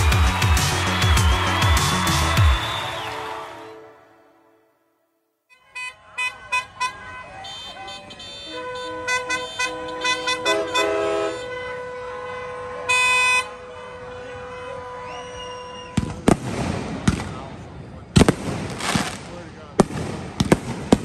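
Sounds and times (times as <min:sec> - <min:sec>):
horn sounding steady note: 0:05.5 - 0:16.0
firecrackers popping and banging: 0:15.9 - 0:21.0.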